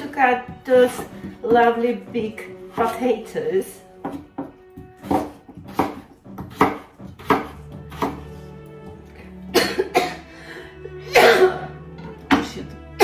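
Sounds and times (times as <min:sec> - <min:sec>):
music playing: 0:00.0 - 0:13.0
knife chopping on cutting board: 0:00.4 - 0:01.7, 0:04.0 - 0:09.0.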